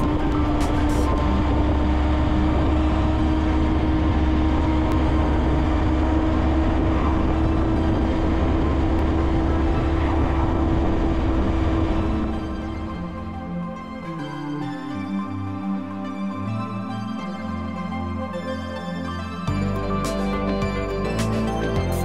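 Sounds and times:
motorcycle engine running steadily: 0:00.0 - 0:13.2
low wind rumble: 0:00.0 - 0:22.0.

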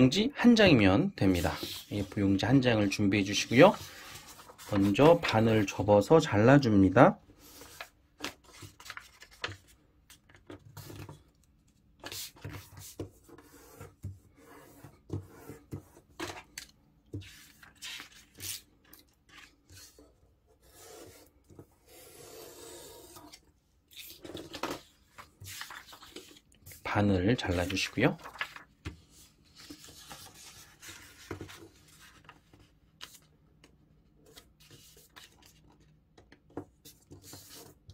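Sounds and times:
paper rubbing and crinkling: 0:01.2 - 0:05.7, 0:07.4 - 0:11.2, 0:17.2 - 0:21.2, 0:21.9 - 0:33.3, 0:34.2 - 0:35.8.

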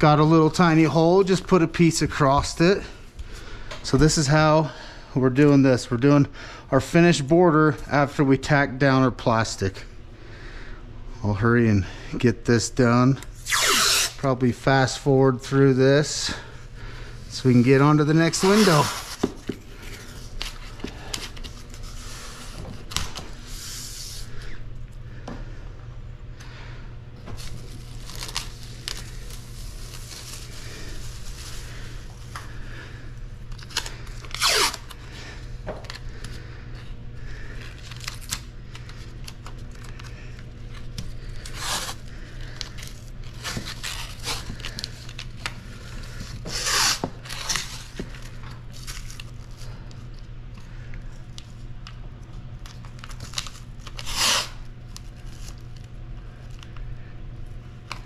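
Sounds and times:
steady low hum: 0:00.0 - 0:58.0
masking tape ripping off roll: 0:13.4 - 0:14.2, 0:33.5 - 0:35.0, 0:46.4 - 0:48.0, 0:52.8 - 0:55.6
plastic sheet crinkling: 0:27.4 - 0:31.9.

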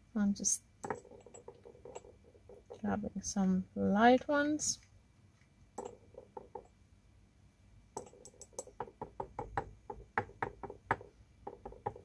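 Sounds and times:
paintbrush tapping paint pans: 0:00.8 - 0:03.0, 0:05.8 - 0:06.8, 0:08.0 - 0:12.0.

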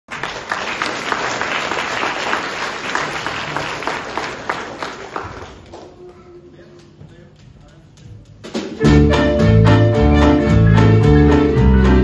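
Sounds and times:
audience applauding: 0:00.1 - 0:06.0
close hand claps: 0:00.1 - 0:06.0.

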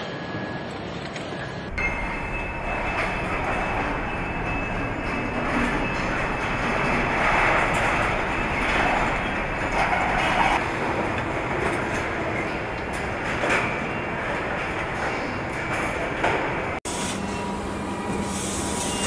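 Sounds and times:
machinery rumble and hiss: 0:16.9 - 0:19.0.

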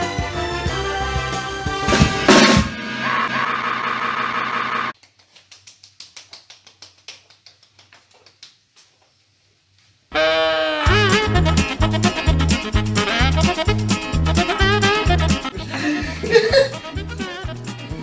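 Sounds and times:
loud band music with drums: 0:00.0 - 0:03.3, 0:10.9 - 0:15.6
music with sliding pitched notes: 0:10.2 - 0:18.0.

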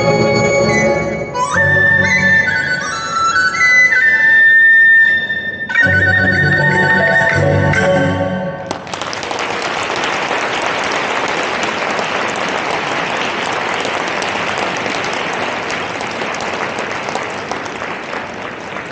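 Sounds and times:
audience applauding: 0:08.6 - 0:18.9.

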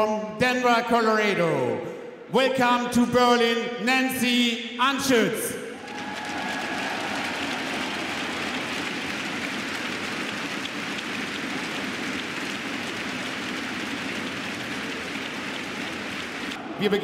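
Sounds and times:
crowd applauding: 0:05.8 - 0:17.0.

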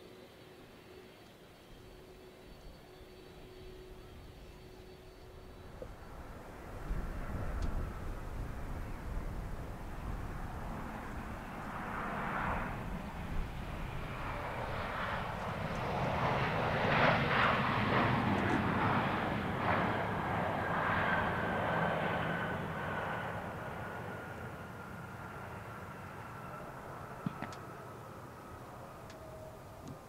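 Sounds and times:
aircraft engine whine: 0:00.0 - 0:30.0
turboprop engines drone: 0:00.0 - 0:30.0.

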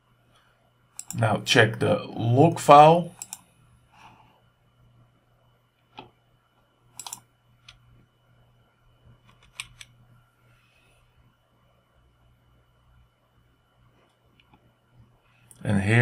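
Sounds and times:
low steady hum: 0:00.0 - 0:16.0
computer mouse clicks: 0:01.0 - 0:01.2, 0:03.2 - 0:03.5, 0:07.0 - 0:07.8, 0:09.2 - 0:10.0.

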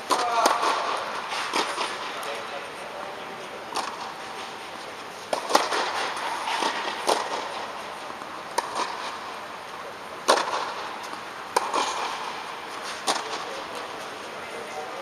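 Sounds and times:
tennis balls bouncing on court: 0:00.0 - 0:02.4, 0:03.7 - 0:04.2, 0:05.2 - 0:09.6, 0:10.2 - 0:13.8
tennis balls struck by rackets: 0:00.0 - 0:02.4, 0:03.6 - 0:14.1.

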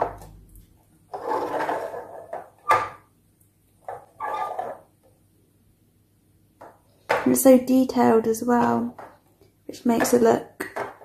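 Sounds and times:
toy wheels rolling on tabletop: 0:01.1 - 0:03.0, 0:03.8 - 0:04.9.

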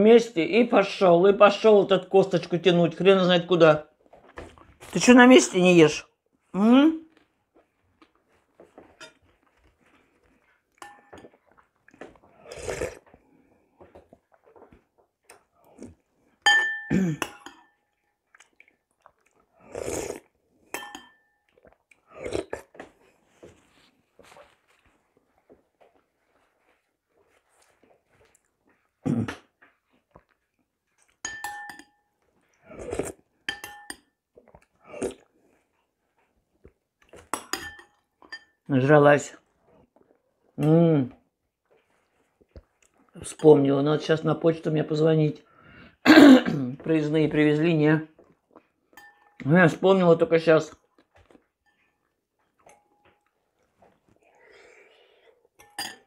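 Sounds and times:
slurping soup: 0:08.9 - 0:14.4, 0:18.3 - 0:20.6, 0:21.6 - 0:24.9, 0:32.5 - 0:33.4, 0:34.4 - 0:37.3
spoon clinking on porcelain bowl: 0:10.8 - 0:11.3, 0:16.4 - 0:17.9, 0:20.7 - 0:21.5, 0:31.2 - 0:32.1, 0:33.5 - 0:34.2, 0:37.3 - 0:38.7, 0:48.9 - 0:49.5, 0:52.6 - 0:53.2, 0:55.6 - 0:56.0
person slurping soup: 0:11.6 - 0:13.4, 0:18.4 - 0:20.4, 0:21.7 - 0:23.1, 0:32.6 - 0:33.3, 0:34.7 - 0:35.4.

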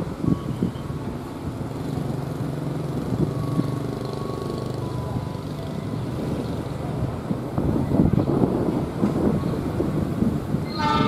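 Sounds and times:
diesel locomotive engine drone: 0:00.0 - 0:11.0.

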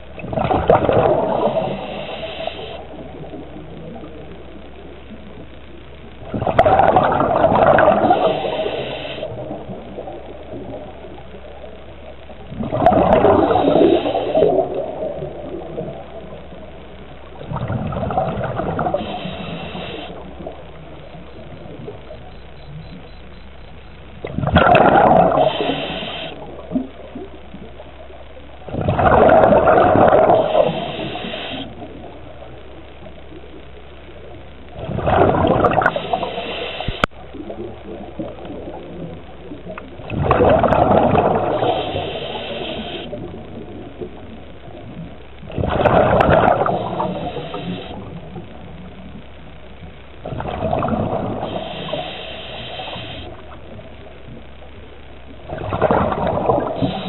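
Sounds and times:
exhaled bubbles gushing underwater: 0:00.0 - 0:57.0
regulator hiss: 0:00.9 - 0:05.4, 0:06.2 - 0:11.9, 0:13.0 - 0:17.5, 0:18.3 - 0:24.4, 0:25.0 - 0:27.6, 0:29.5 - 0:32.8, 0:35.4 - 0:40.0, 0:40.6 - 0:45.5, 0:46.2 - 0:49.9, 0:51.0 - 0:55.5, 0:56.5 - 0:57.0.

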